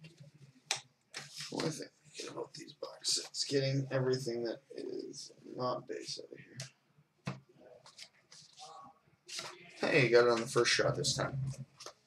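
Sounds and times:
cards rustling: 7.8 - 8.7, 9.3 - 9.6.

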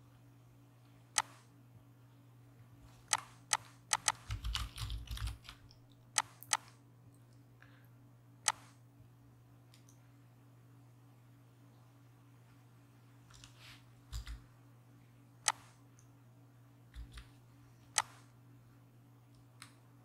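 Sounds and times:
computer keyboard typing: 3.1 - 6.7, 14.1 - 14.4, 15.5 - 15.7, 16.9 - 17.3.

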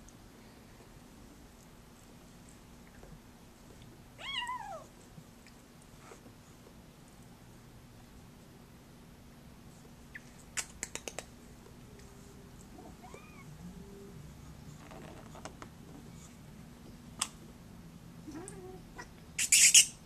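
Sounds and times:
cats meowing: 4.2 - 4.9, 12.7 - 13.6, 18.2 - 19.2.

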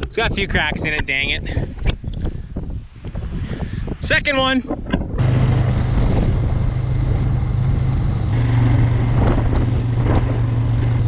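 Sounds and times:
vehicle engine running: 5.2 - 11.0.

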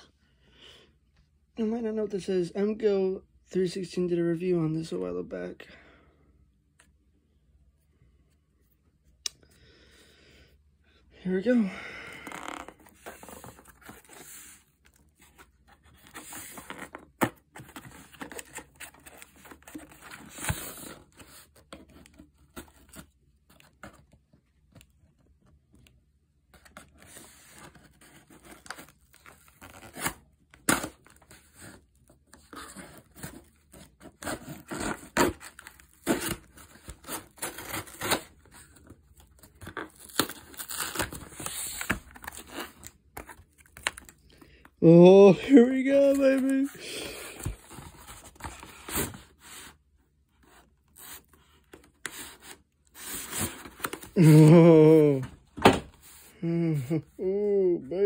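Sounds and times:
cardboard tearing and scraping: 12.3 - 24.0, 26.6 - 44.1, 45.9 - 49.8, 50.4 - 55.3.

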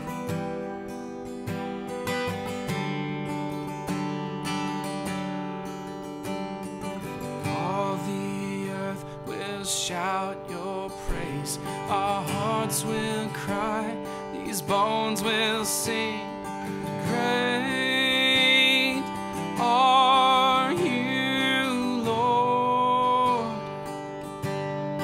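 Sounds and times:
acoustic guitar strumming: 0.0 - 25.0
person singing with vibrato: 7.4 - 24.2.

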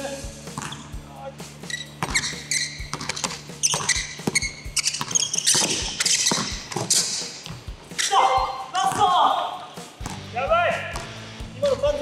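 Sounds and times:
basketball bouncing on hardwood: 0.5 - 0.9, 2.0 - 7.6, 10.0 - 10.3, 11.0 - 11.2
sneakers squeaking on floor: 0.5 - 1.0, 1.6 - 10.3.

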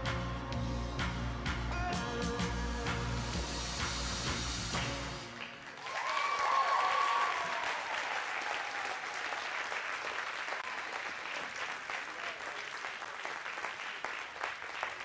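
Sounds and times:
program music: 0.0 - 5.6
audience applauding: 4.7 - 15.0
pitched cheer: 5.4 - 12.8.

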